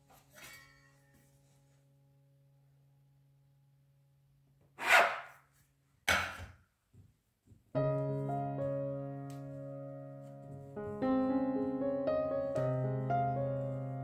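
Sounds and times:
piano music: 7.7s - 14.0s.

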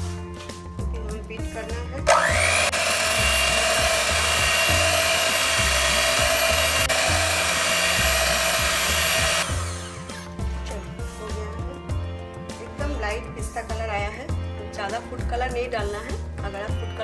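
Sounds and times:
background music with beat: 0.0s - 1.9s, 3.2s - 16.9s
electric hand mixer whine: 2.0s - 10.2s.

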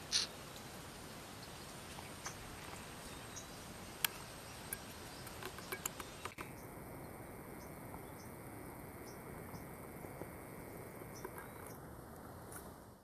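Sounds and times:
sharp small clicks: 0.0s - 0.3s, 4.0s - 6.5s
high insect chirps: 0.0s - 12.6s
steady hiss: 0.0s - 13.0s.

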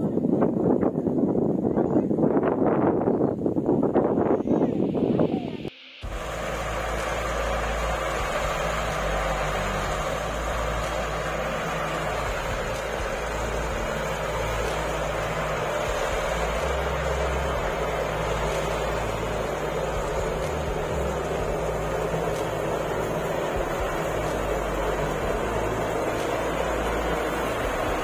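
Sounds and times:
chaff rushing out: 3.9s - 28.0s
threshing machine running: 6.0s - 28.0s.

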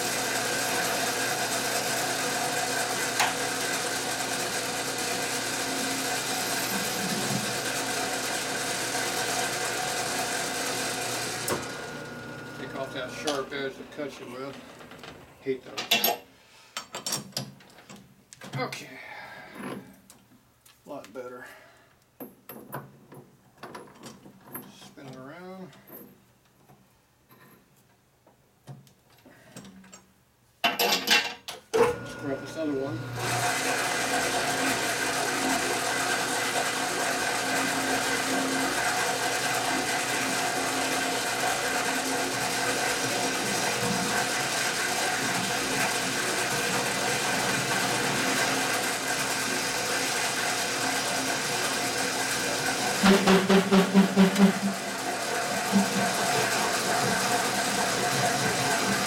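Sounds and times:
metal lathe humming: 0.0s - 14.8s, 32.0s - 59.0s.

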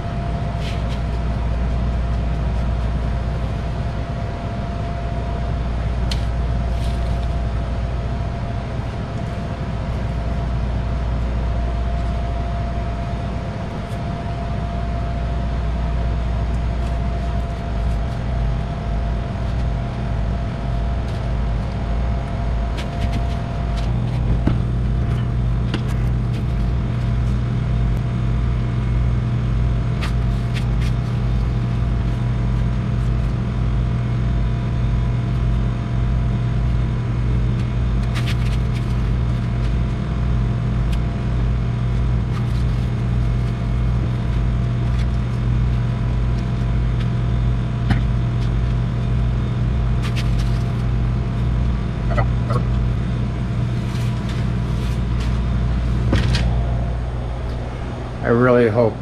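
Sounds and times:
high whine: 0.0s - 59.0s
kitchen equipment humming: 41.5s - 59.0s.

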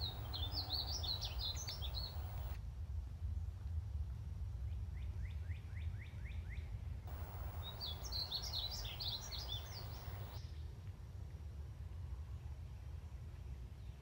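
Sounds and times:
high fast bird warbling: 0.0s - 2.6s, 7.1s - 10.4s
steady low rumble: 7.1s - 10.4s.

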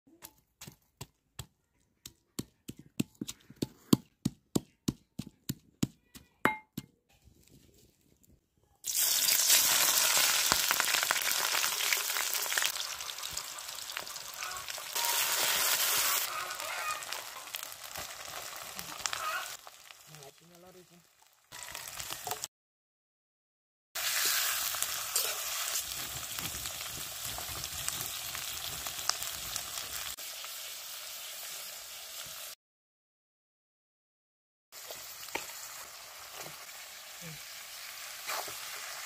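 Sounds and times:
metal pestle pounding in mortar: 2.1s - 6.9s
hot oil sizzling in a wok: 8.8s - 22.5s, 24.0s - 32.6s, 34.8s - 39.0s.

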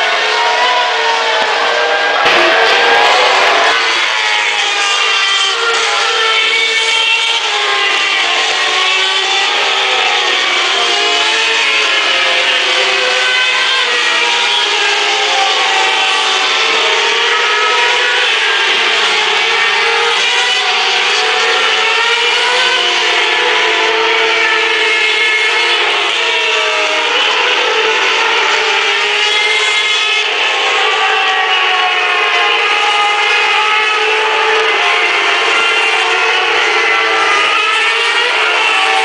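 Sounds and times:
racing car engines passing: 0.0s - 39.0s.

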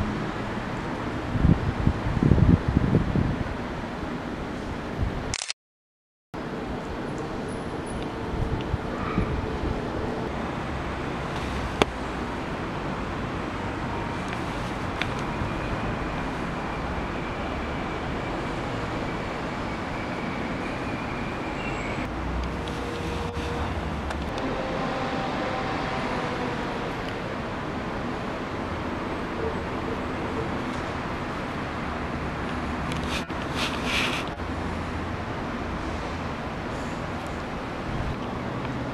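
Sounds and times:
distant city traffic rumble: 0.0s - 5.4s, 6.4s - 38.9s
sharp click: 5.3s - 5.6s.

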